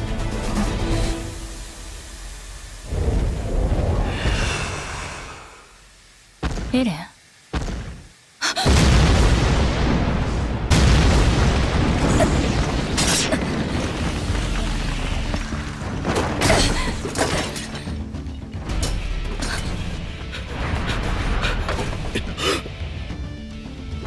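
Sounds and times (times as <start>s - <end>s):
music: 0.0s - 2.2s, 13.8s - 24.0s
crashing masonry and debris: 8.7s - 19.6s.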